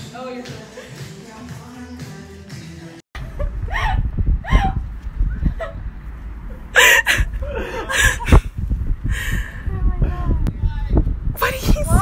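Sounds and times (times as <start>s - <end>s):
person laughing: 3.2s - 5.8s, 6.8s - 8.5s
steady low rumble: 3.2s - 12.0s.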